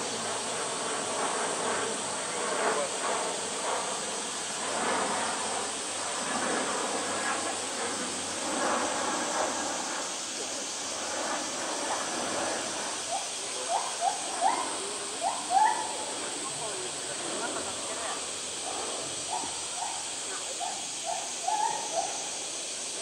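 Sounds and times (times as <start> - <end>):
steady high hiss: 0.0 - 23.0
crowd chatter: 10.2 - 23.0.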